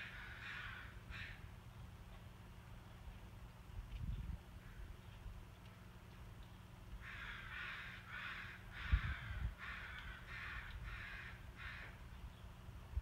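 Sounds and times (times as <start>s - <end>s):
bird cawing: 0.0s - 1.5s, 7.0s - 12.0s.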